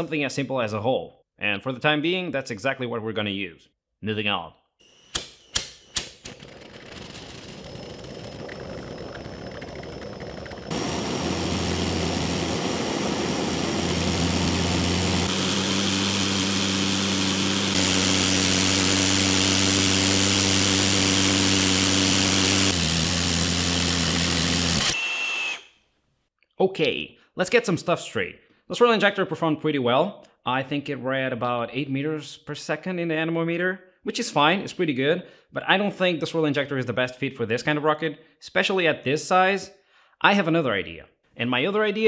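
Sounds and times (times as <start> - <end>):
low hum: 6.3 - 21.6.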